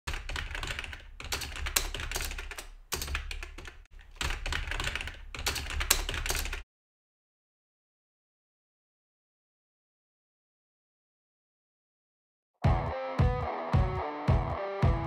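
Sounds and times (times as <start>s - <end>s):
keyboard typing: 0.1s - 6.6s.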